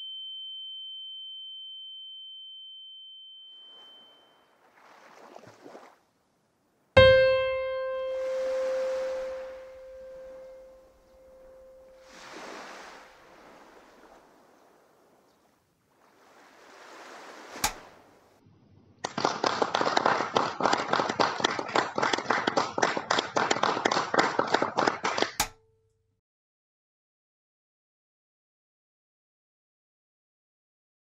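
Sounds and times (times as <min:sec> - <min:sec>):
sharp click: 0:17.6 - 0:17.8
audience applauding: 0:19.0 - 0:25.4.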